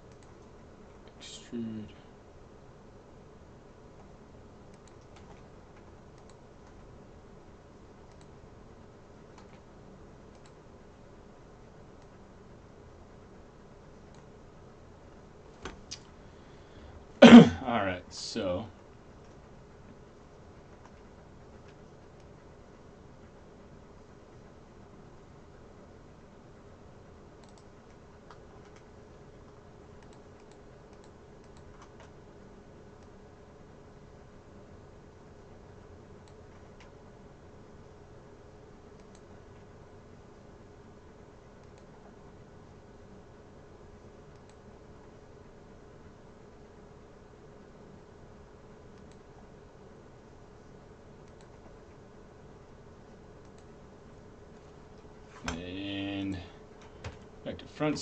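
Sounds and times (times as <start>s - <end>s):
faint steady hum and hiss: 0.0s - 58.0s
keyboard and mouse clicks: 4.7s - 6.9s, 9.3s - 9.7s, 27.4s - 28.9s, 29.5s - 32.2s, 38.9s - 39.3s, 51.2s - 51.8s.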